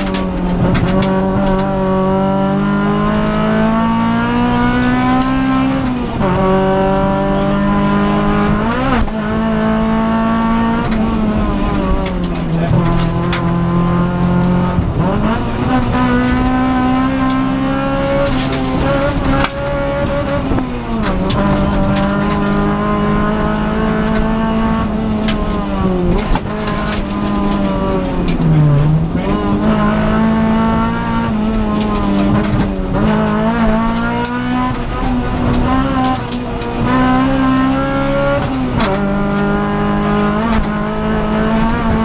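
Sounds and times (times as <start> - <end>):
car engine revving hard: 0.0 - 42.0.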